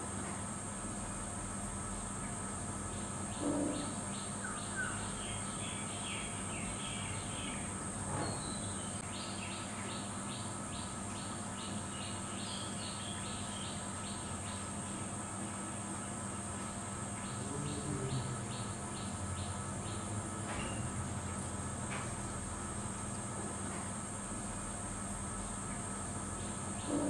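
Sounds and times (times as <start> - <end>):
high insect buzz: 0.5 - 27.0
birds chirping: 2.9 - 16.3.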